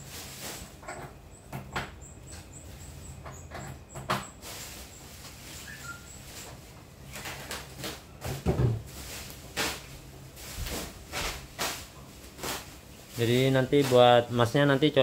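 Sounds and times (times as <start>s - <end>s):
knocks and clunks of handling: 6.5s - 9.0s.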